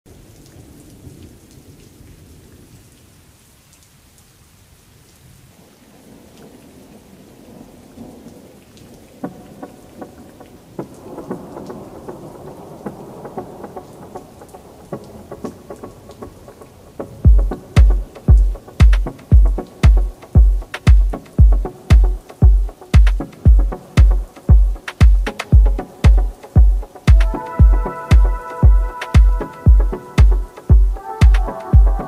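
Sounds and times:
rain hiss: 0.1s - 32.0s
low thunder rumble: 17.3s - 32.0s
faint pitched tone: 27.2s - 32.0s.

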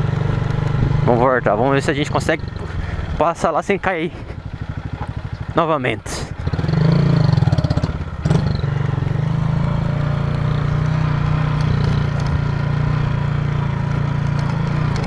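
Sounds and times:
motorcycle engine: 0.0s - 15.0s.

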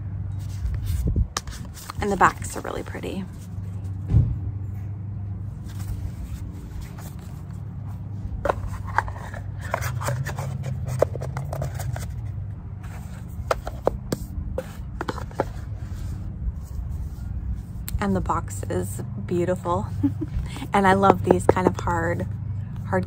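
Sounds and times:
steady low hum: 0.0s - 23.0s
card stock scraping: 5.6s - 17.1s.

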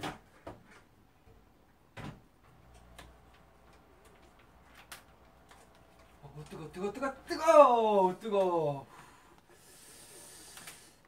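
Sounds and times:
low steady hum: 2.4s - 9.5s.

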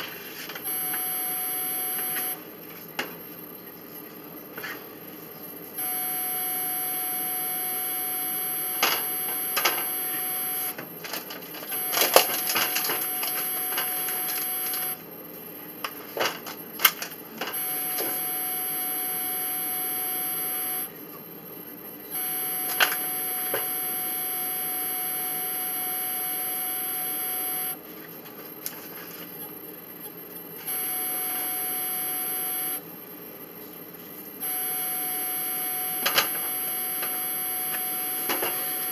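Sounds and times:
electronic whine: 0.6s - 2.5s, 5.4s - 10.8s, 11.7s - 15.0s, 17.5s - 27.8s, 29.3s - 32.9s, 34.2s - 38.9s.

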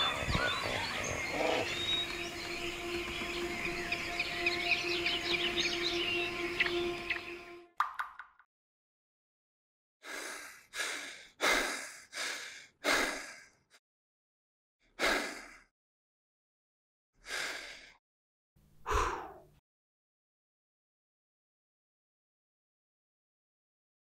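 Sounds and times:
person breathing in ragged gasps: 10.0s - 13.7s, 15.0s - 15.7s, 17.2s - 18.0s, 18.8s - 19.5s.

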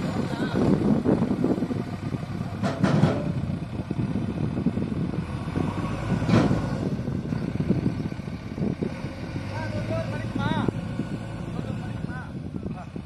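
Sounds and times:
diesel engines running: 0.0s - 13.0s
sharp knocks: 2.6s - 3.4s.

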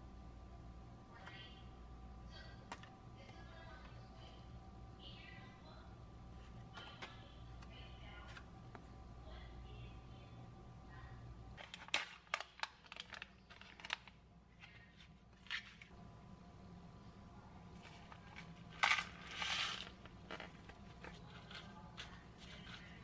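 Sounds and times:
toppings rattling into cup: 11.6s - 14.2s
plastic cup crinkling: 11.6s - 16.0s, 17.8s - 23.0s.

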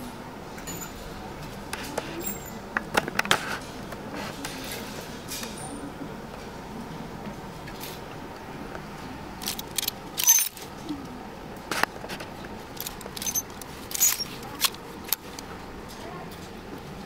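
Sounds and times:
store hum: 0.0s - 17.0s
hangers clicking on metal rack: 9.4s - 10.8s, 12.7s - 15.4s.

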